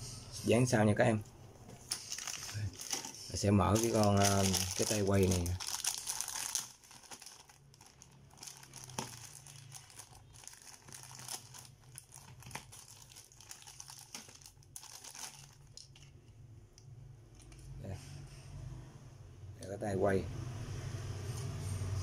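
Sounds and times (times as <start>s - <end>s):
plastic bag crinkling: 1.8s - 16.2s.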